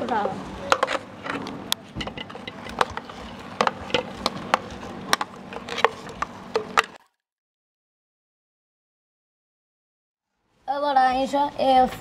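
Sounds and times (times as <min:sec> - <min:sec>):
whisk clinking against metal bowl: 0:02.0 - 0:07.0.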